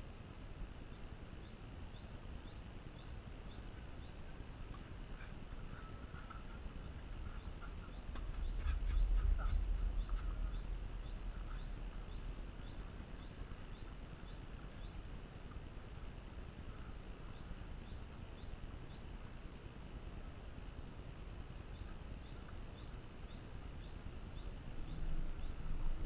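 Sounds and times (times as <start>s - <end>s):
small bird chirping: 0.9s - 19.4s, 21.6s - 26.0s
low rumble: 5.1s - 18.5s, 23.0s - 26.0s.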